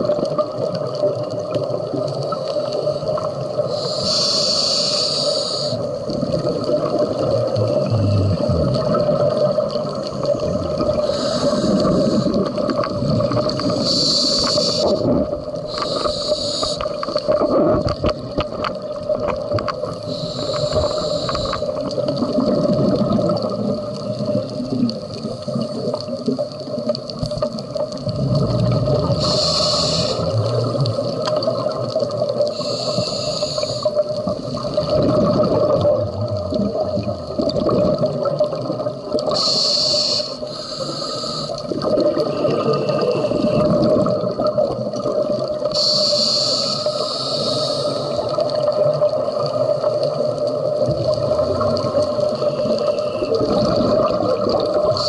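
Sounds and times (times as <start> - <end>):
regulator breath hissing: 3.6 - 6.0, 10.6 - 12.8, 13.5 - 17.2, 19.8 - 21.8, 29.0 - 31.2, 32.4 - 34.6, 39.3 - 41.8, 45.7 - 48.4
gurgling exhaled bubbles: 5.8 - 39.6, 41.0 - 45.8, 47.4 - 55.0.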